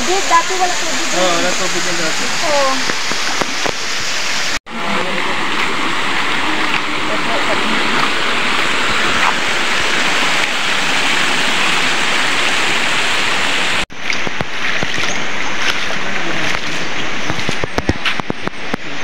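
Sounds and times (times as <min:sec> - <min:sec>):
stream running over stones: 0:00.0 - 0:19.0.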